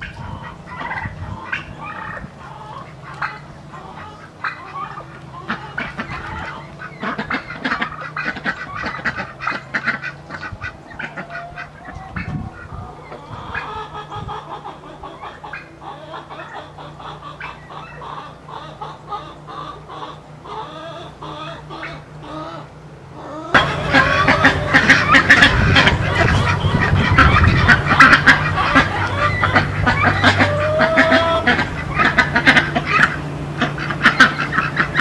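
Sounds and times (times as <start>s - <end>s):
ducks quacking: 0.0s - 35.0s.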